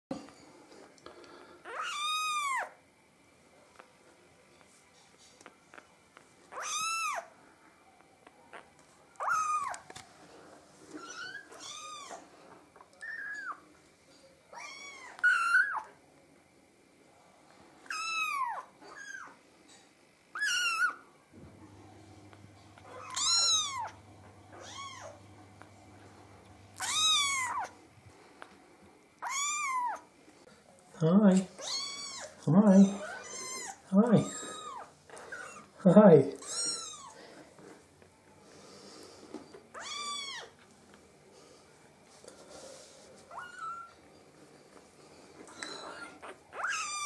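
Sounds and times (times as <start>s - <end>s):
kitten mewing: 22.8s - 25.2s, 26.8s - 27.7s.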